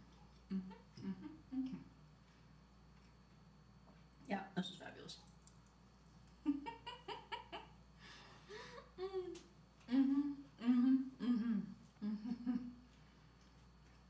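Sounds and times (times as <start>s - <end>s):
woman humming mmm: 0.4s - 2.0s, 8.9s - 13.0s
woman laughing: 6.4s - 7.8s.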